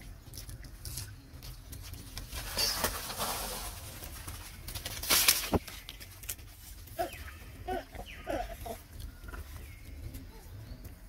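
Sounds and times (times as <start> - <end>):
rustling and patter on sand: 0.0 - 7.6.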